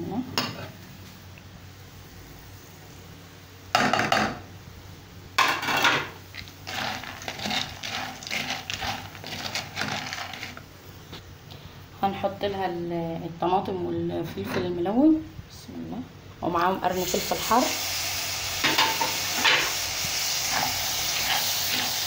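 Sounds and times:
pasta scraping in a pot: 0:05.8 - 0:10.7, 0:18.7 - 0:22.0.

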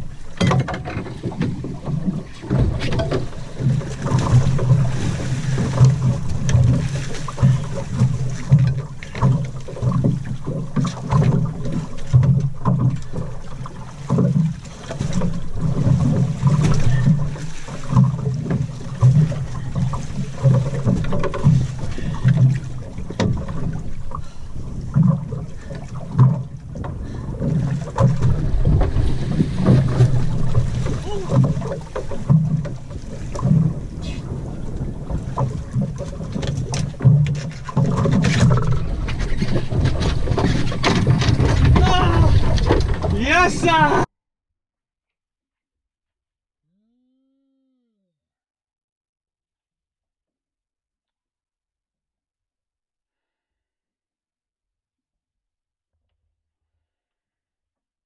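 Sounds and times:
outboard motor idling: 0:00.0 - 0:44.0
wind buffeting microphone: 0:01.0 - 0:08.2, 0:28.1 - 0:37.3, 0:38.1 - 0:44.1.

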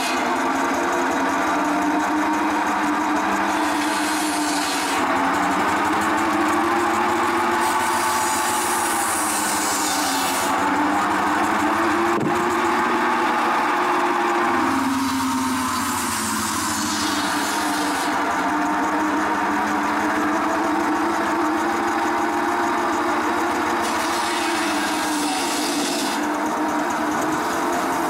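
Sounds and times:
circular saw whine: 0:00.0 - 0:28.0
saw cutting log: 0:00.0 - 0:28.0.

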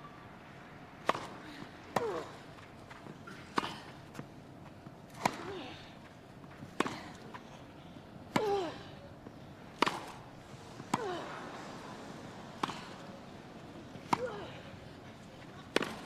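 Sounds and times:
racquets striking tennis ball: 0:01.0 - 0:08.6, 0:09.6 - 0:16.0.

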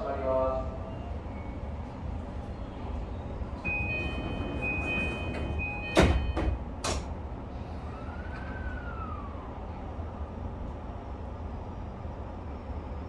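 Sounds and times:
door-closing chime: 0:03.6 - 0:06.6
sliding doors knocking shut: 0:03.7 - 0:07.1.

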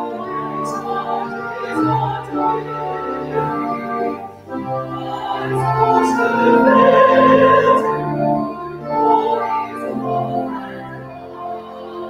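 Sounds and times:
organ accompaniment: 0:00.0 - 0:11.6
person singing slow sacred song: 0:04.8 - 0:10.2.

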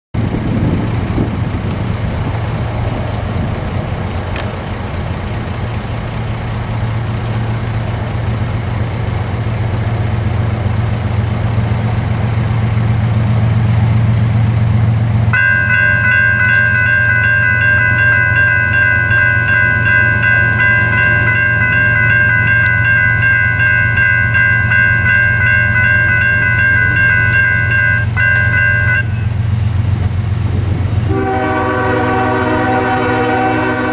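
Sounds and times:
low train rumble: 0:00.2 - 0:33.9
electronic crossing bells ringing: 0:15.3 - 0:29.6.

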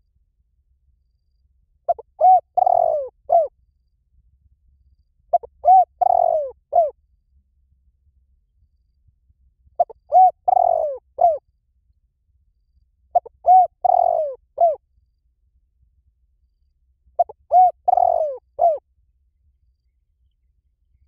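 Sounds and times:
dove cooing: 0:01.9 - 0:03.5, 0:05.3 - 0:07.0, 0:09.8 - 0:11.4, 0:13.1 - 0:14.8, 0:17.2 - 0:18.8.

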